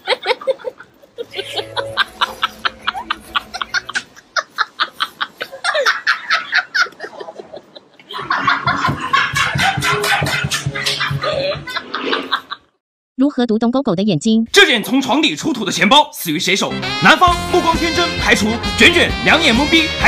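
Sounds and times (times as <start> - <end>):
people laughing hard: 0.0 - 12.8.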